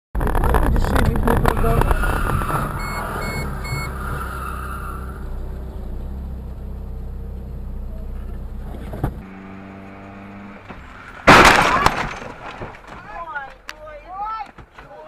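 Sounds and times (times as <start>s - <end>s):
car engine and road noise: 0.1s - 15.0s
short electronic beeps: 2.8s - 4.0s.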